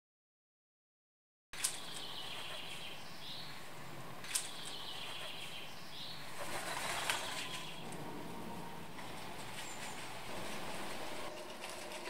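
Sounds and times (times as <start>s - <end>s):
bird wings flapping: 6.3s - 7.9s, 9.0s - 12.0s.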